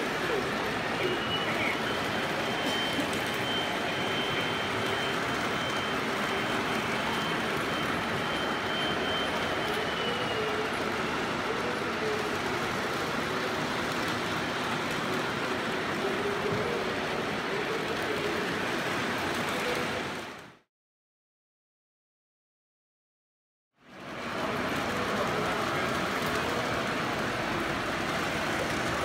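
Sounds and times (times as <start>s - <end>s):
faint high whine: 0.0s - 13.8s.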